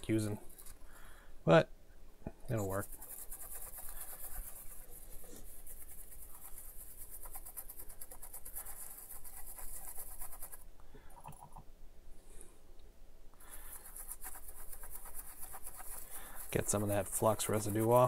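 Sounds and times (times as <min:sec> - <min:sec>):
toothbrush scrubbing circuit board: 0:02.5 - 0:10.6, 0:13.5 - 0:18.0.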